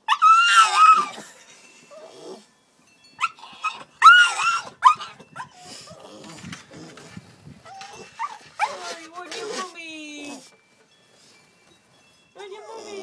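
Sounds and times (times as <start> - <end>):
puppy crying: 0.0 - 1.3, 3.2 - 9.6.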